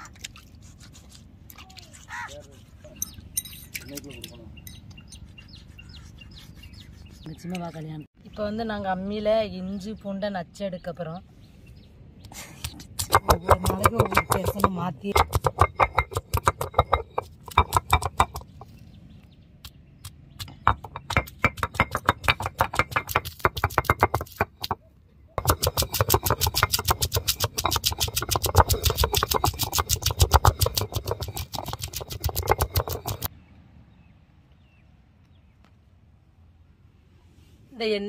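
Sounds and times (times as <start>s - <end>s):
stone-on-stone grinding strikes: 12.8s - 18.7s, 20.4s - 24.8s, 25.4s - 33.3s.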